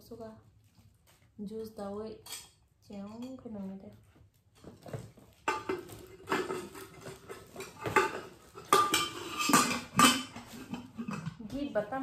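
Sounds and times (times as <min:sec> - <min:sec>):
metal pot and lid clanking: 0:05.4 - 0:11.4.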